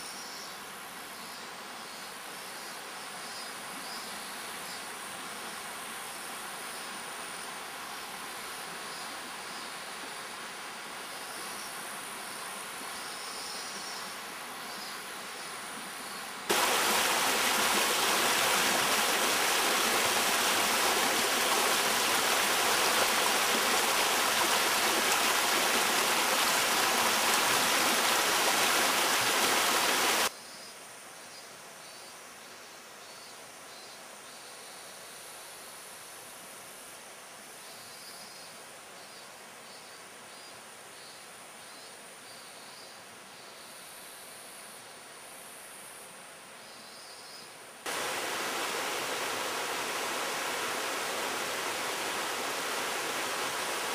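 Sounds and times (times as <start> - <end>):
rushing whitewater: 16.3 - 30.3, 47.9 - 53.9
river flowing over rocks: 16.4 - 30.3, 47.9 - 53.9.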